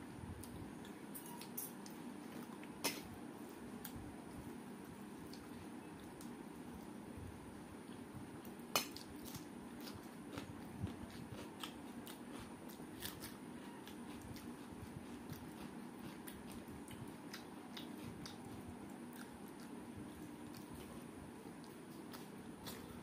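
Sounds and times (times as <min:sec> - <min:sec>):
chewing: 0:09.0 - 0:23.0.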